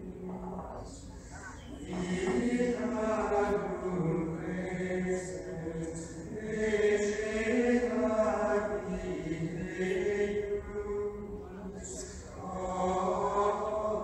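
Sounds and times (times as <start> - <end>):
voices chanting long notes: 1.5 - 14.0.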